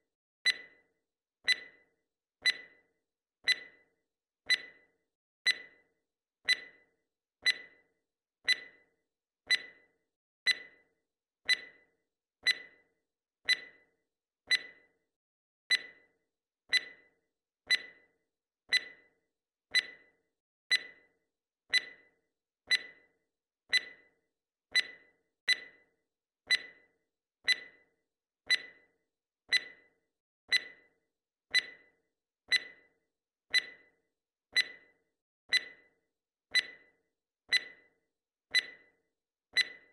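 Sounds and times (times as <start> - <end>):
timer ticking: 0.4 - 0.8, 1.4 - 2.8, 3.4 - 3.9, 4.5 - 5.9, 6.5 - 7.8, 8.5 - 8.9, 9.5 - 9.9, 10.5 - 10.9, 11.5 - 12.9, 13.5 - 13.9, 14.5 - 14.9, 15.7 - 16.1, 16.7 - 17.1, 17.7 - 18.1, 18.7 - 19.1, 19.7 - 21.1, 21.7 - 23.1, 23.7 - 24.1, 24.7 - 25.9, 26.5 - 27.9, 28.5 - 28.9, 29.5 - 39.0, 39.6 - 39.9.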